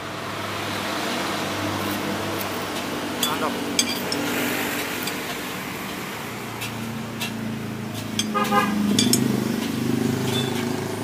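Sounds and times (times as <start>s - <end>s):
traffic engines passing: 0.0s - 11.0s
sharp metallic clinks: 3.2s - 5.4s, 8.1s - 9.5s, 10.2s - 10.7s.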